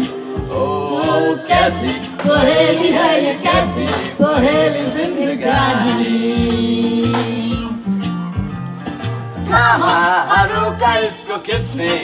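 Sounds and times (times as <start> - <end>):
woman singing into microphone: 0.0 - 7.9
backing music with bass and beat: 0.0 - 12.0.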